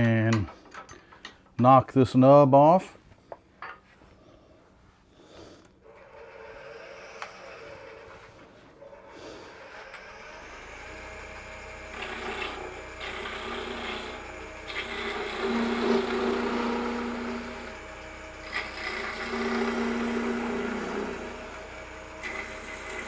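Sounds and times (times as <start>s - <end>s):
gouge scraping wood on lathe: 5.8s - 23.0s
humming tone of vibrating wood: 9.6s - 23.0s.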